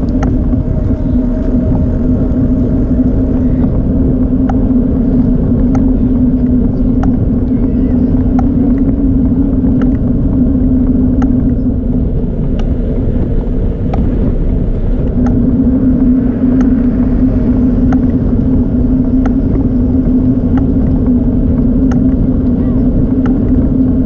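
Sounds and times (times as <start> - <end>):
bicycle tyre noise on pavement: 0.0 - 24.0
constant low hum: 0.0 - 24.0
wind rumble: 0.0 - 24.0
faint ticks: 16.6 - 18.3.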